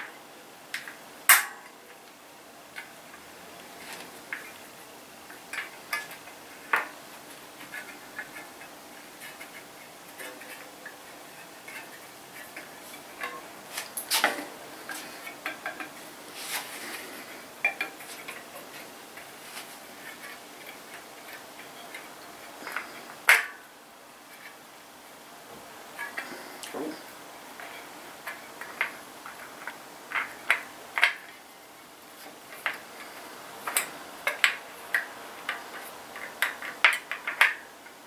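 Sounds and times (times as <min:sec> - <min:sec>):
metallic clicks on bike spokes: 0:27.6 - 0:31.4, 0:32.2 - 0:38.0.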